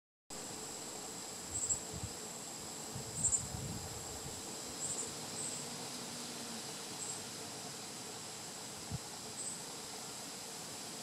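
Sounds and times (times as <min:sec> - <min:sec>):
insects trilling: 0:00.3 - 0:11.0.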